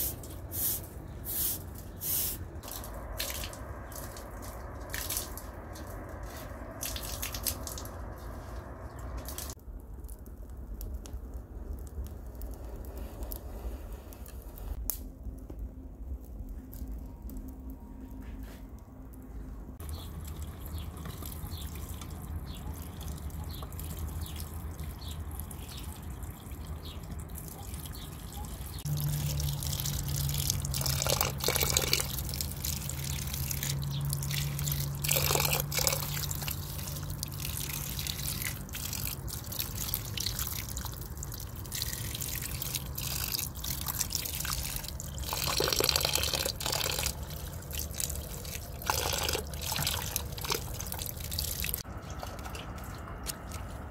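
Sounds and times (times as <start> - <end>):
low steady hum: 2.5 - 27.6.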